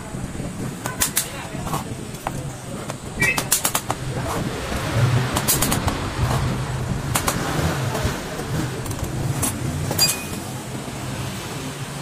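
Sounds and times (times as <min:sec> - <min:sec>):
metal tools clinking: 0:09.4 - 0:10.5.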